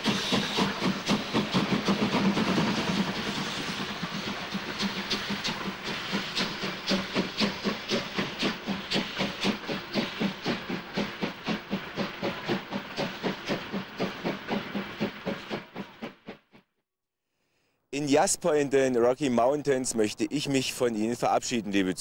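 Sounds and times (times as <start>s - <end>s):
steam hissing: 0.0s - 16.0s
steam locomotive exhaust chuffs: 0.0s - 16.6s.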